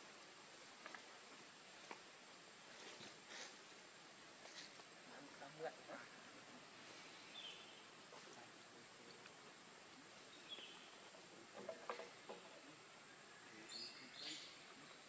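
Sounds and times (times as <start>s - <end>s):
faint high chirps: 12.6s - 15.0s.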